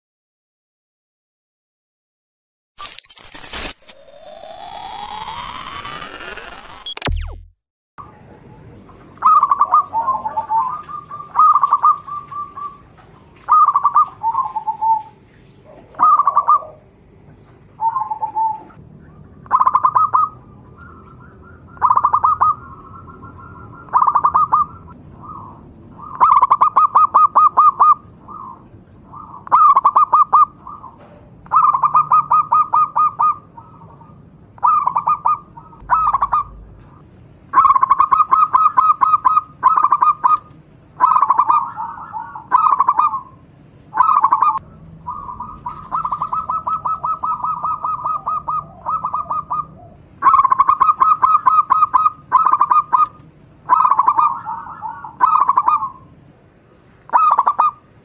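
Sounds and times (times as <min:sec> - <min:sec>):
dove cooing: 0:09.2 - 0:17.0, 0:17.8 - 0:18.8, 0:19.4 - 0:37.0, 0:37.6 - 0:56.1, 0:57.1 - 0:57.8.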